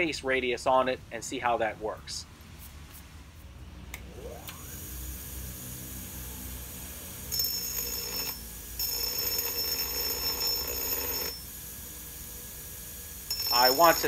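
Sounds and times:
bench grinder humming: 4.1 - 14.0.

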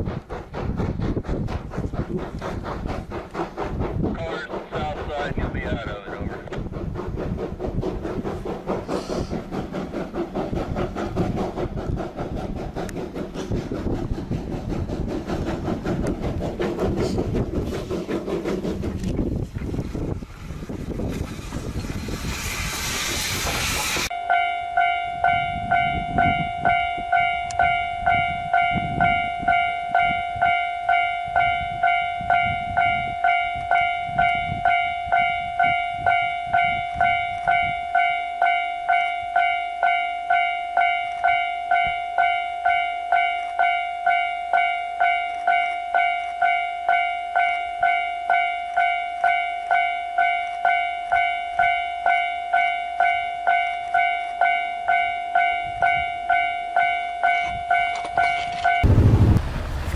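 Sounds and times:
low train rumble: 0.0 - 59.9
level crossing alarm dinging: 24.1 - 58.9.

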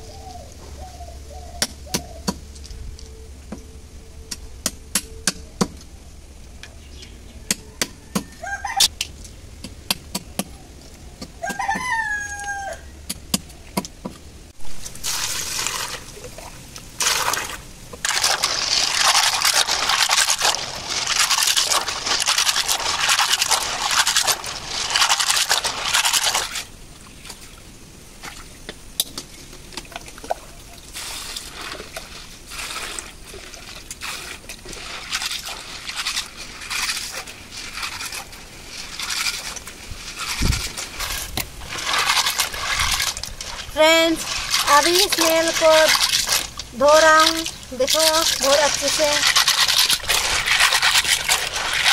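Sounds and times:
water rushing and splashing: 14.5 - 51.9
water sloshing and trickling: 14.5 - 51.9
snail shells scraping and clicking: 17.0 - 26.7, 35.2 - 51.9.

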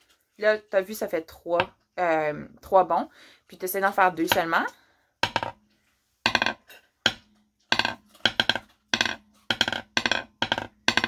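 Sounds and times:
sticks tapping on wooden table: 5.2 - 5.6, 6.3 - 11.0.

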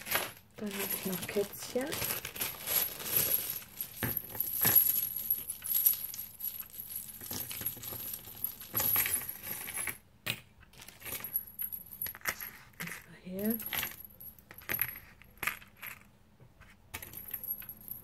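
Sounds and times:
keyrings and chains jangling: 0.0 - 9.8
rustling: 0.0 - 10.0.

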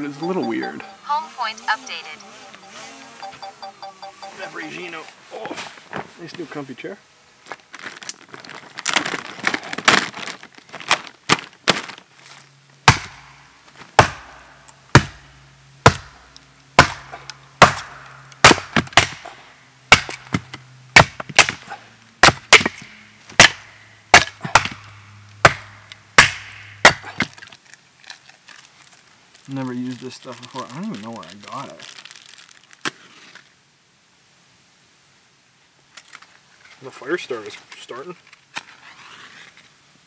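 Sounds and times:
axe splitting firewood: 12.8 - 27.6.

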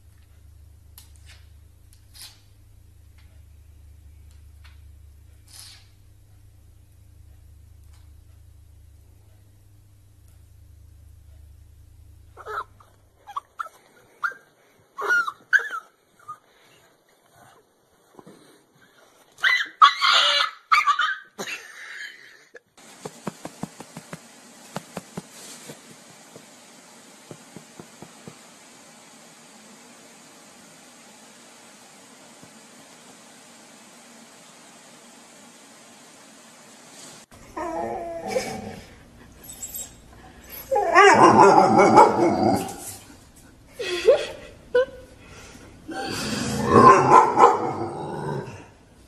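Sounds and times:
faint hiss: 0.0 - 15.0, 21.5 - 40.8
dog yelping: 12.4 - 16.4, 19.4 - 21.3, 39.4 - 42.8, 46.8 - 47.8.

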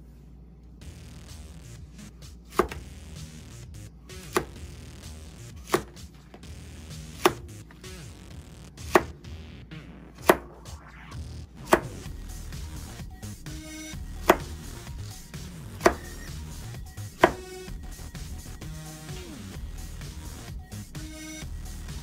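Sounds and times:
knife chopping on cutting board: 2.5 - 2.8, 4.3 - 4.6, 5.6 - 6.0, 8.9 - 9.1, 14.3 - 14.5, 17.2 - 17.4.

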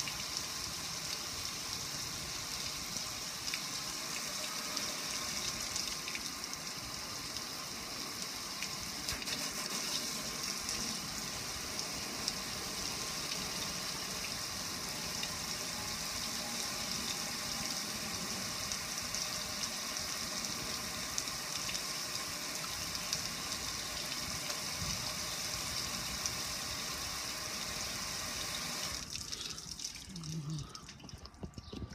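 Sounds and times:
water splashing on metal grill: 8.0 - 15.4.

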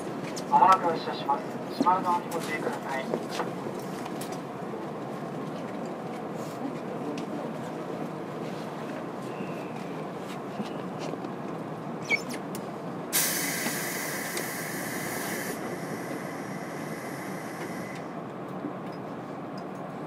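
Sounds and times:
train low rumble: 0.0 - 20.0
compressed air hiss: 13.2 - 18.0.

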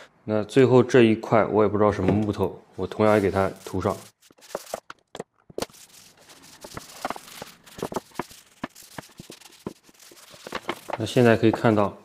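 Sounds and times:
paper towel rubbing on wood: 3.0 - 4.8, 5.6 - 12.0.

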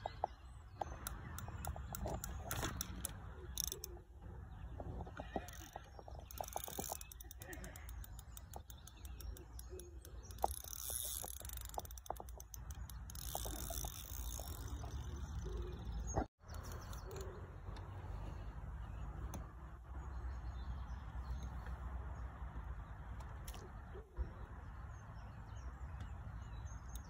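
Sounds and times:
wind rumble on microphone: 0.0 - 7.0
small birds chirping: 0.0 - 27.0
faint clicks: 5.1 - 17.9.

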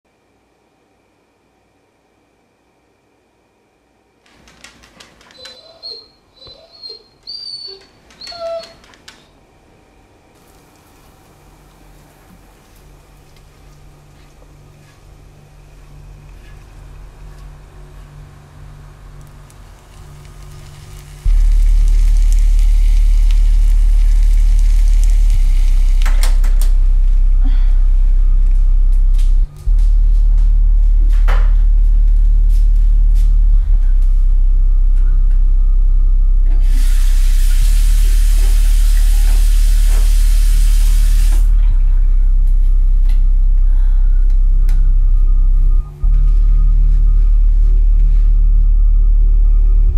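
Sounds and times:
deep low drone: 12.9 - 49.9
loud low hum: 13.0 - 49.9
faint crackles: 19.2 - 26.7
food sizzling in frying pan: 19.5 - 26.4, 36.6 - 41.5
tap water running: 36.6 - 41.5.

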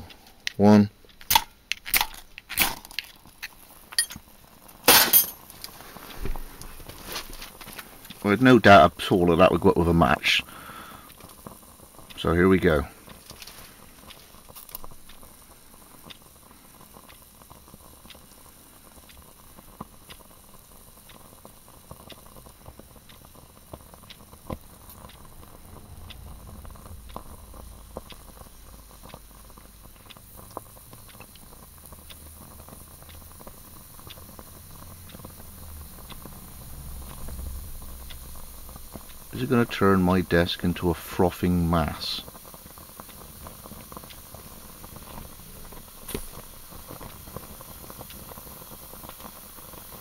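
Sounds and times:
flame rumble and hiss: 0.0 - 50.0
fuel ticking and popping: 5.4 - 50.0.

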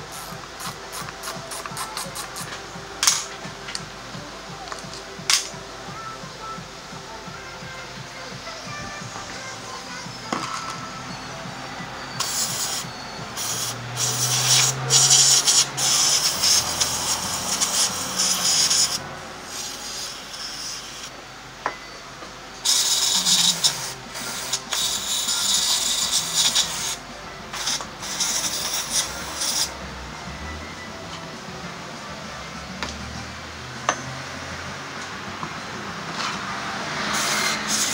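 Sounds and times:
aerosol spray can hissing: 0.0 - 2.6, 12.2 - 21.1, 22.6 - 27.0, 27.6 - 29.7, 37.0 - 37.9.

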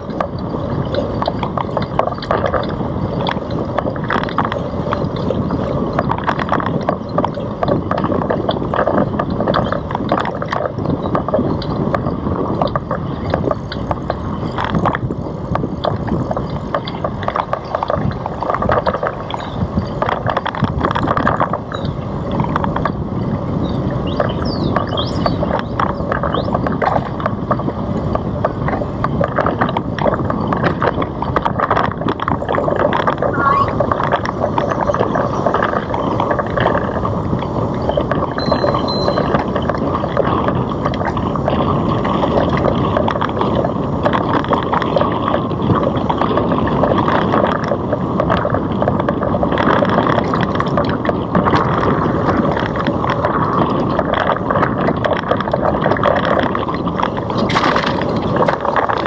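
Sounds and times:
bicycle rattles and clicks: 0.0 - 59.0
bicycle road noise: 0.0 - 59.0
wind rushing over microphone: 0.0 - 59.0
high squeak: 33.3 - 33.8, 38.4 - 39.4.

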